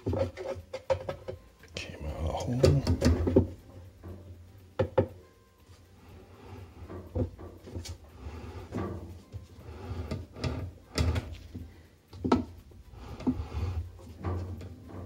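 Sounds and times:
tools knocking and clinking in tub: 0.0s - 1.5s, 2.4s - 5.3s, 6.9s - 8.0s.

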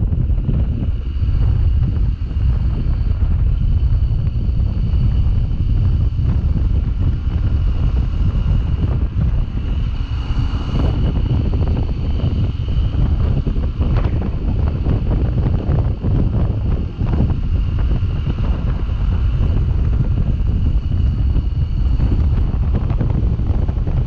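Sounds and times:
motorcycle engine running: 0.0s - 24.0s
wind buffeting microphone: 0.0s - 24.0s.

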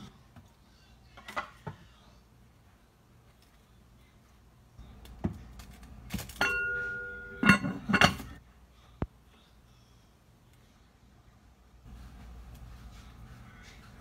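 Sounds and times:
metal lid ringing on pot: 6.4s - 8.3s
lid clinking: 6.4s - 8.4s.

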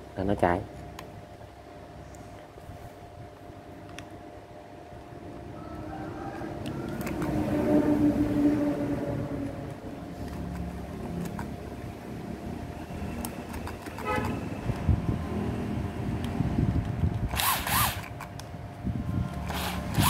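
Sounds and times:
low steady rumble: 0.0s - 20.0s
cordless drill whine: 17.3s - 18.2s, 19.3s - 20.0s.

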